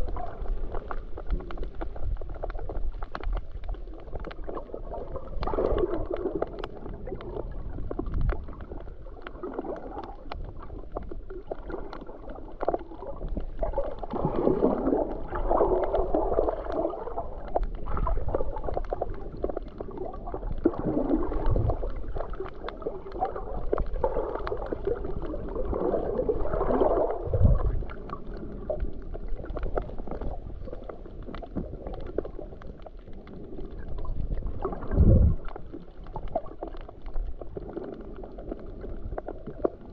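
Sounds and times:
faint clicks: 0:00.0 - 0:15.2
gurgling water underwater: 0:00.0 - 0:39.9.

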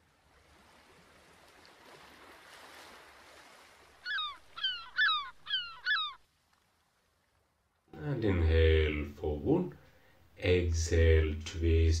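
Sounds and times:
bird falling cries: 0:04.0 - 0:06.2.

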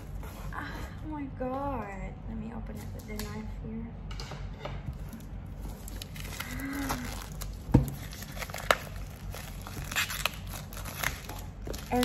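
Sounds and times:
plastic shrink wrap crinkling: 0:04.9 - 0:12.0.

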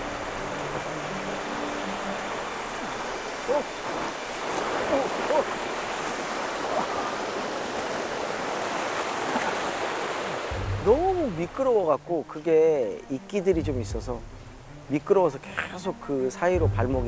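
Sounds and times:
stream rushing over boulders: 0:00.0 - 0:13.2.

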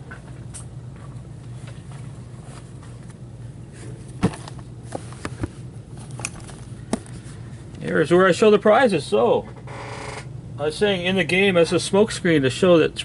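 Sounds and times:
knocks and clicks of box handling: 0:04.1 - 0:07.2.

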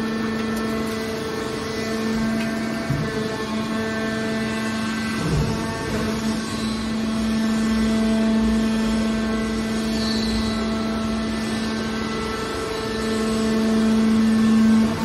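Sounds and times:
hydraulic pump and motor humming: 0:00.0 - 0:15.0.

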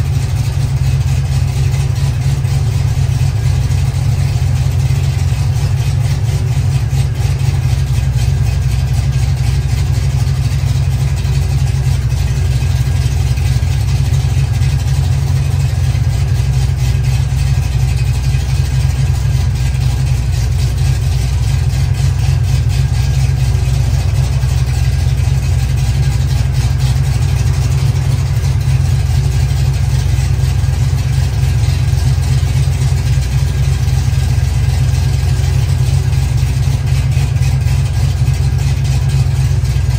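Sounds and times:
car engine idling: 0:00.0 - 0:39.9.

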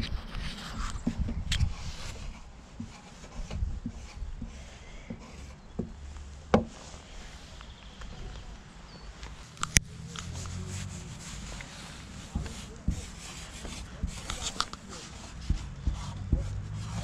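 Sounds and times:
handling noise: 0:00.0 - 0:17.0
marker rubbing on plastic lid: 0:00.3 - 0:06.0, 0:10.0 - 0:17.0.

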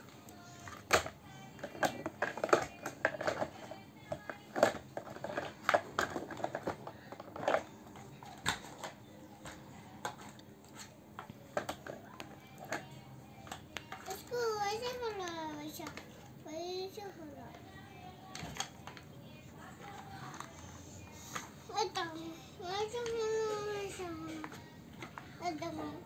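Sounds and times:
plastic toy vehicles clattering: 0:00.7 - 0:09.0, 0:11.2 - 0:16.1.

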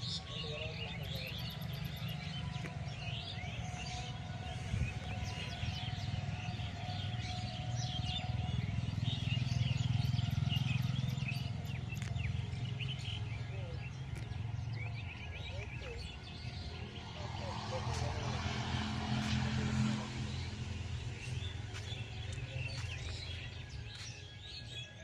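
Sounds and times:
small birds chirping: 0:00.0 - 0:25.0
steady low rumble: 0:11.4 - 0:24.8.

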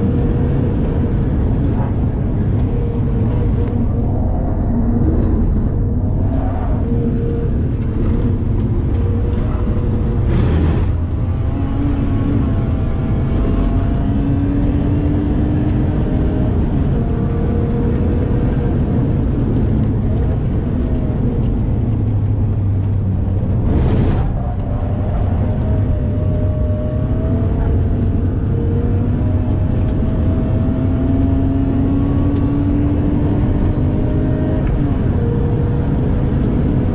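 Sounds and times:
car engine revving from inside cabin: 0:06.8 - 0:20.1, 0:25.3 - 0:36.9.

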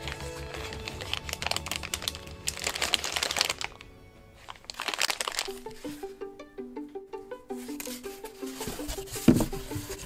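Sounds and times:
plastic pouches crinkling: 0:00.0 - 0:06.1
background music: 0:00.0 - 0:10.0
light plucked tune: 0:05.3 - 0:10.0.

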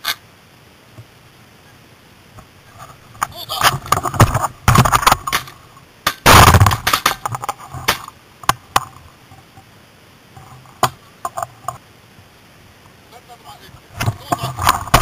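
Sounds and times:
sharp clicks and knocks: 0:03.2 - 0:09.0
shotgun blast: 0:06.2 - 0:07.0.

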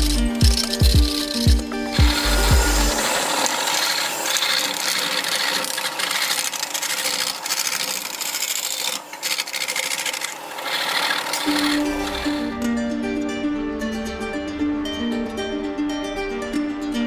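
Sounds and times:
lathe tool scraping wood: 0:00.0 - 0:12.6.

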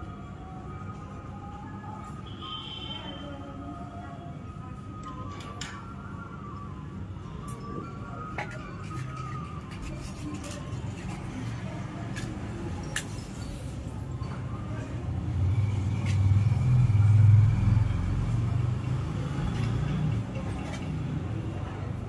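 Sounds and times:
road vehicle passing by: 0:13.5 - 0:22.0.

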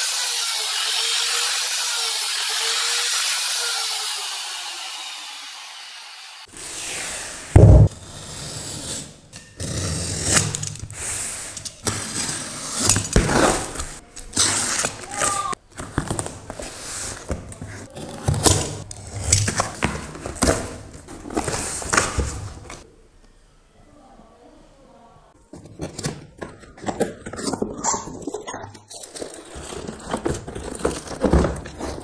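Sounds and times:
box cutter slicing packing tape: 0:09.6 - 0:15.3.

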